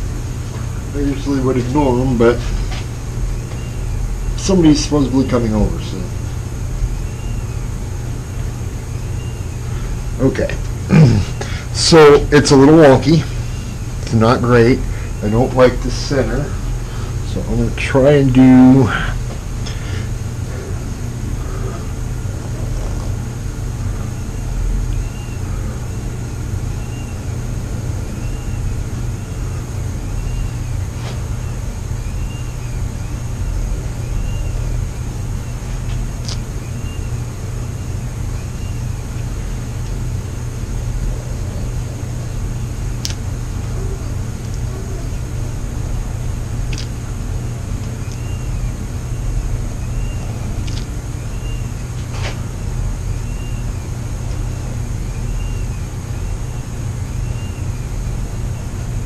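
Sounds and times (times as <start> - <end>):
low mechanical hum: 0.0 - 59.0
faint high chirp: 26.8 - 27.2, 28.2 - 30.7, 34.0 - 34.8, 48.0 - 50.4, 51.2 - 51.7, 53.2 - 53.7, 54.4 - 56.6, 57.2 - 57.8.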